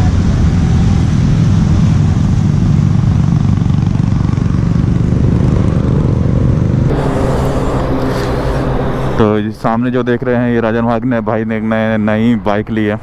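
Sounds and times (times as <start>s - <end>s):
motorcycle engines rumbling: 0.0s - 13.0s.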